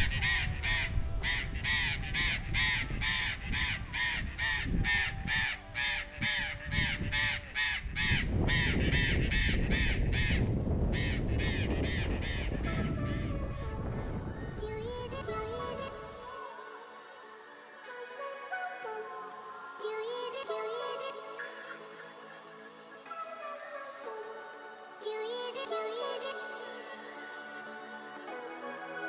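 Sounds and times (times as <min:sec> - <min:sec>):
parrots calling: 0:00.0 - 0:13.4.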